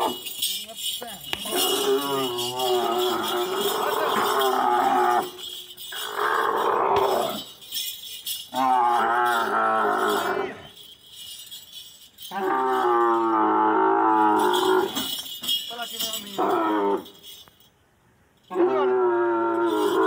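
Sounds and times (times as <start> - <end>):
camel bellowing: 1.3 - 7.5, 8.5 - 10.8, 12.3 - 15.2, 16.3 - 17.2, 18.5 - 20.0.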